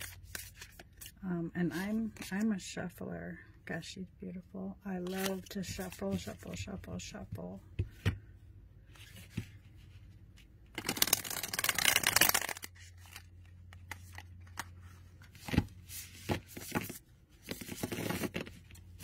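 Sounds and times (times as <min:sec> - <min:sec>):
cards riffle shuffling: 0:10.8 - 0:14.7, 0:15.4 - 0:18.8.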